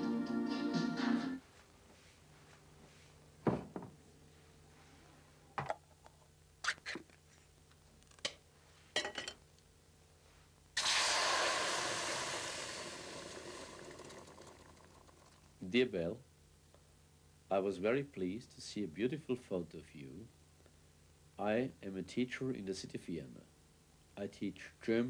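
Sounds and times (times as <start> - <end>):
stew sizzling in hot pot: 10.8 - 15.3.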